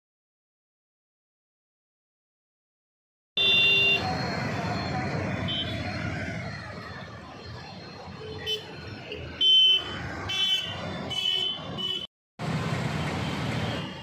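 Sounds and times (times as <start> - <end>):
vehicle horns tooting: 3.4 - 4.2, 5.4 - 5.9, 8.2 - 12.1
road traffic: 3.4 - 14.0.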